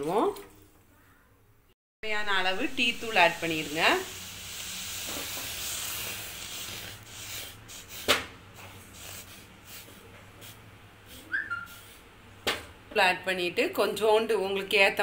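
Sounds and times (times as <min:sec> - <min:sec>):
saucepan heating hiss: 0:02.3 - 0:12.0.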